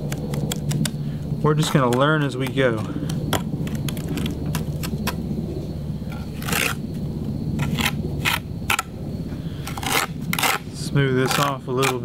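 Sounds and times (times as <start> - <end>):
steady low hum: 0.0 - 12.0
trowel scraping and tapping concrete: 1.6 - 5.2, 11.2 - 12.0.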